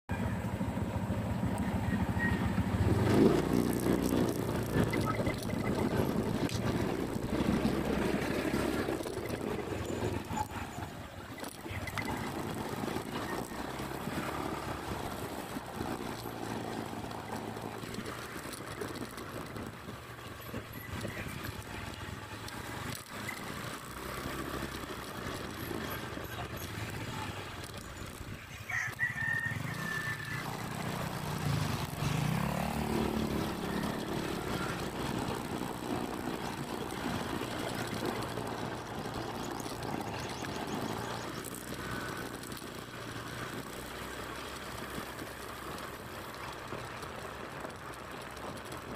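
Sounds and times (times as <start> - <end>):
vehicle engine and road noise: 0.0 - 48.9
rooster crowing: 28.5 - 30.7.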